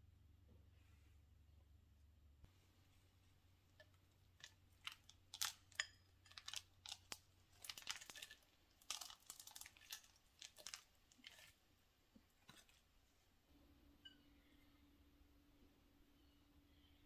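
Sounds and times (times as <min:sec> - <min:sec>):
chopped nuts sprinkled onto pie: 0:03.8 - 0:11.6.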